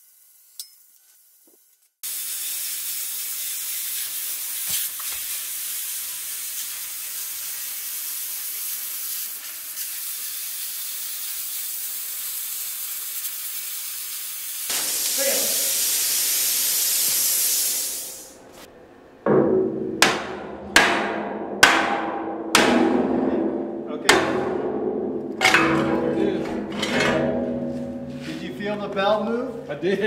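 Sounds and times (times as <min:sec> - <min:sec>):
plasma cutter hissing: 0:02.0 - 0:18.4.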